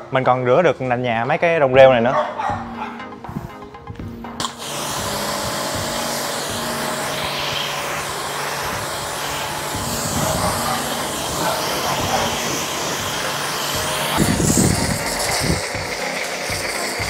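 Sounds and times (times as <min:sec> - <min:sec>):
pressure washer jet hissing: 0:04.4 - 0:17.0
pressure washer motor: 0:04.4 - 0:17.0.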